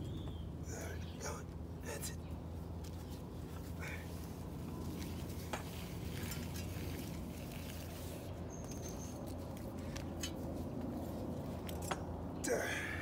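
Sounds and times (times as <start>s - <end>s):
steady low hum: 0.0s - 13.0s
scratchy rustling of heat wrap: 2.5s - 11.8s.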